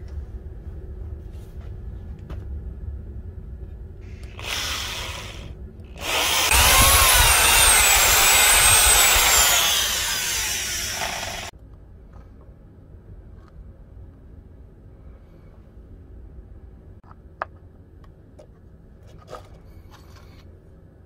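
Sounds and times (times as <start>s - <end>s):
drill press drilling through steel: 4.4s - 11.5s.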